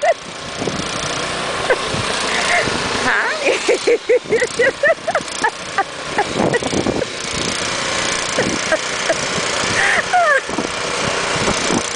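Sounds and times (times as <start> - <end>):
snowblower engine running: 0.0 - 11.9
high-pitched cries: 9.8 - 10.5.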